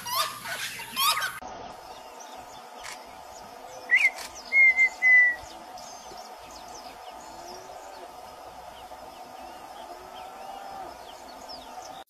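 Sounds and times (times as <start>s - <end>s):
bird whistling song: 3.9s - 7.2s.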